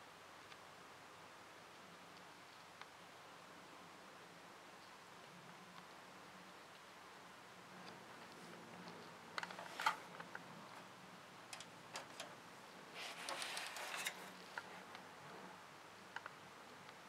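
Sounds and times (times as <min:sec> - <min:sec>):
rustling: 0:11.5 - 0:15.0
light clicks and taps: 0:16.1 - 0:17.0.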